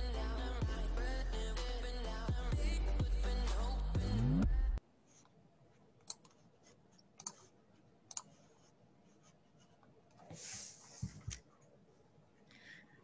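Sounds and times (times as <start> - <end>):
intro music with rising sweep: 0.0 - 4.8
computer mouse clicks: 6.0 - 6.4, 7.0 - 7.5, 8.1 - 8.4.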